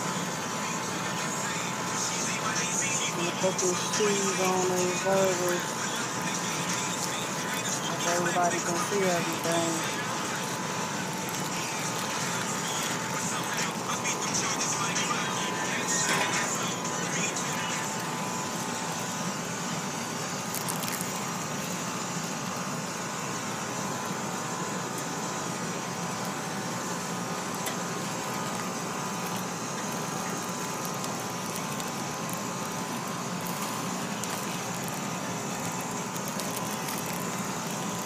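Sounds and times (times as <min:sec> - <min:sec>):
meat sizzling on a grill: 0:00.0 - 0:38.0
faint crackles: 0:20.4 - 0:21.7, 0:27.6 - 0:38.0.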